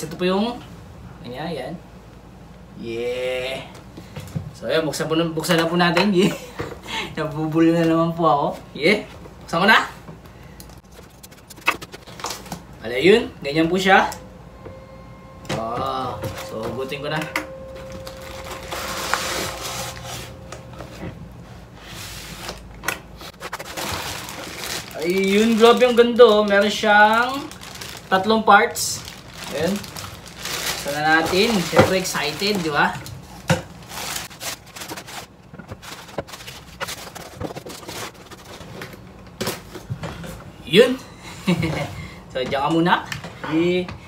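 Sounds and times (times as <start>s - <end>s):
cardboard and plastic rustling: 10.7s - 12.7s, 17.8s - 21.2s, 21.8s - 40.2s
cardboard clicks and crackles: 22.5s - 26.8s, 33.8s - 39.7s
cardboard sliding and rustling: 33.8s - 38.7s.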